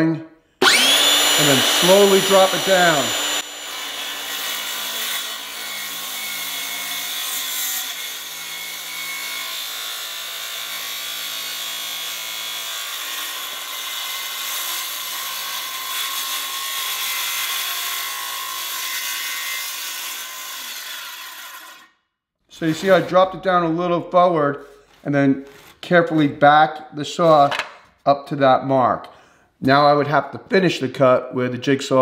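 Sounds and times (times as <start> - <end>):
circular saw cutting plywood: 0.6 - 21.9, 22.5 - 23.4.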